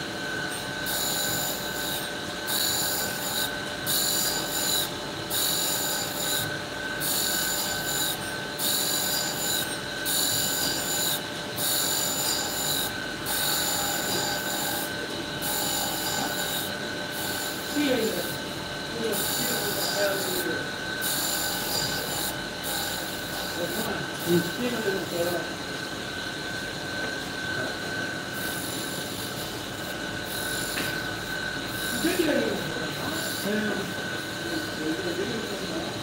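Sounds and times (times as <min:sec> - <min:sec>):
grinder spindle whine: 0:00.0 - 0:36.0
grinding wheel rasping on metal: 0:11.7 - 0:18.4, 0:19.0 - 0:25.4.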